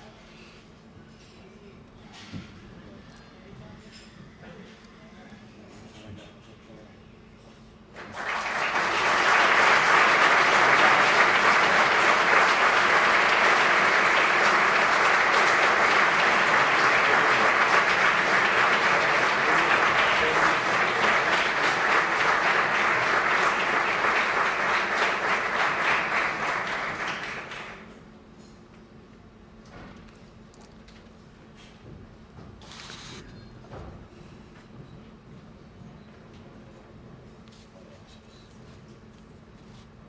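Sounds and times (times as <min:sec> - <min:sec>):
audience applauding: 0:08.0 - 0:27.9.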